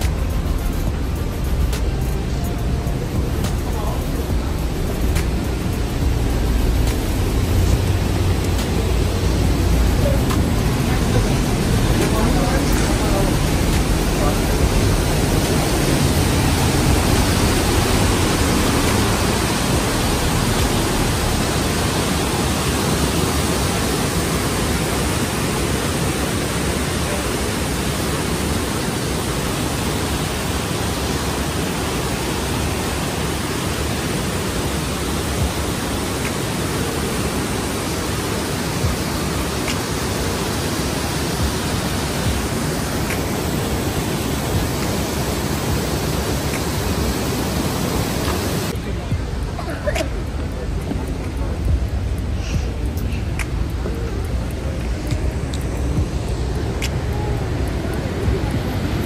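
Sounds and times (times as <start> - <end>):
waterfall rushing: 0.0 - 59.0.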